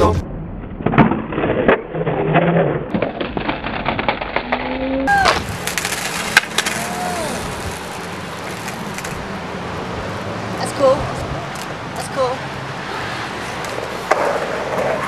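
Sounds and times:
outdoor background noise: 0.0s - 15.0s
skateboard clattering and scuffing: 0.8s - 9.2s, 13.1s - 15.0s
skateboard slamming onto concrete: 2.6s - 9.2s, 13.7s - 15.0s.

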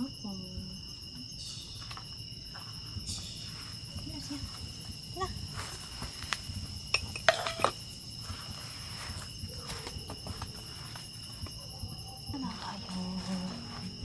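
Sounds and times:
crickets chirping: 0.0s - 14.0s
food bowl set down: 7.0s - 7.8s.

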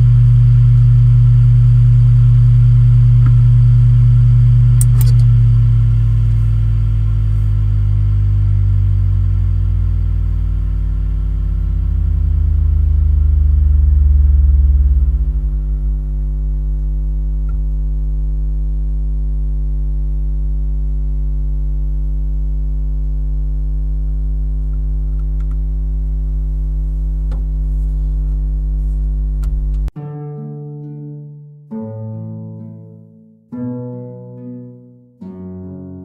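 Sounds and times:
deeper drone: 0.0s - 18.5s
hard drive spinning hum: 0.0s - 19.2s, 21.8s - 29.9s.

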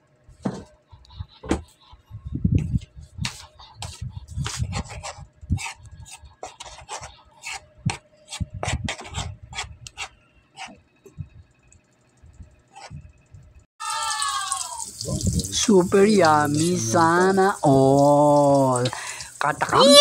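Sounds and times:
spoon scraping bowl: 3.2s - 10.8s, 12.8s - 13.0s.

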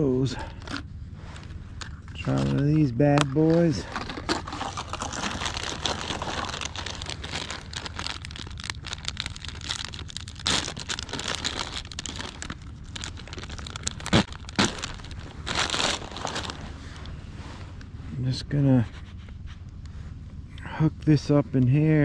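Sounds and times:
plastic packet crinkling and rustling: 3.4s - 17.1s.

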